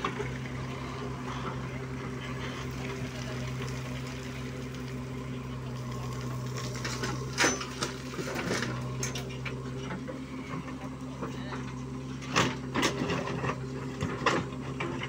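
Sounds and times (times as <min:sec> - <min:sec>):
diesel engine running: 0:00.0 - 0:15.0
soil and stones clattering on metal: 0:05.8 - 0:10.1.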